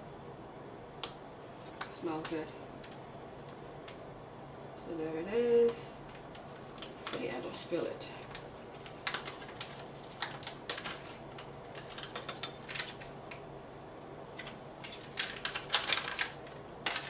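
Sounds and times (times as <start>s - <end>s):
plastic packet crinkling: 6.1s - 7.6s, 8.2s - 13.4s, 14.4s - 17.0s.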